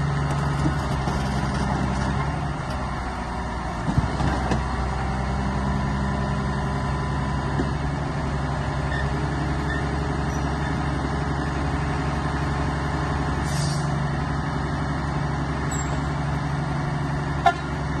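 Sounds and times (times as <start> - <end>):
diesel engine running: 0.0 - 18.0
brief hiss: 13.4 - 13.9.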